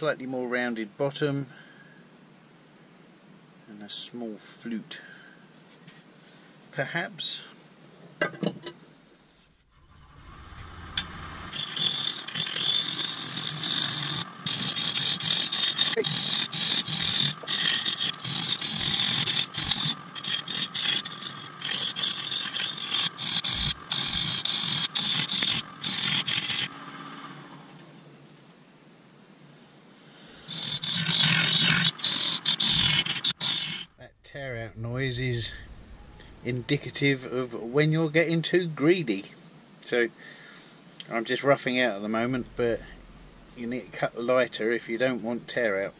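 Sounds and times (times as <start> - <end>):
lathe tool scraping wood: 9.8 - 27.8, 30.2 - 37.2, 42.0 - 44.2.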